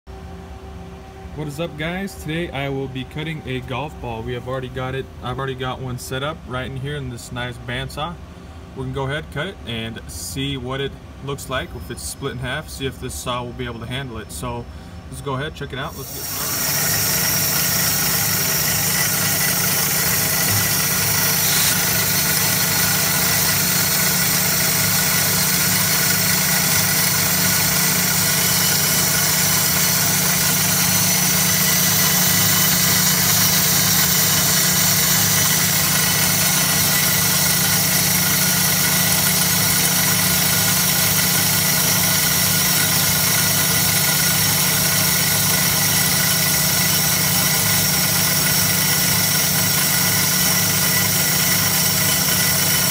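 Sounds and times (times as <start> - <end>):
band saw cutting: 15.8 - 52.9.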